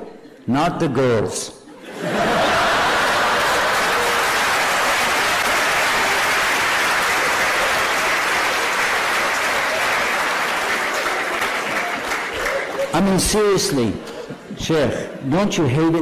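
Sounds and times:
audience applause: 2.0 - 13.2.

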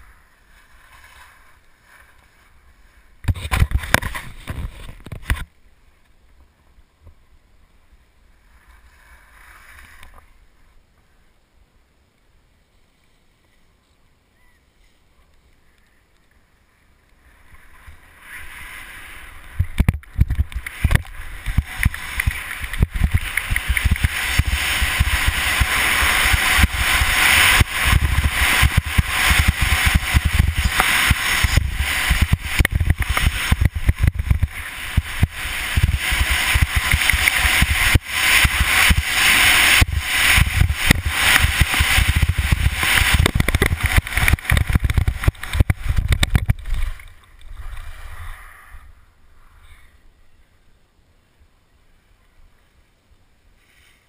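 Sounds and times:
skis scraping on hard snow: 0.0 - 5.5, 17.2 - 48.2
wind rushing over microphone: 17.3 - 49.6.

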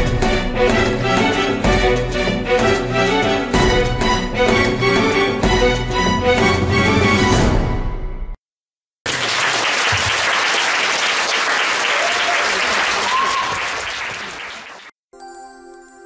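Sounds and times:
stage music: 0.0 - 8.0
audience applauding: 9.0 - 15.0.

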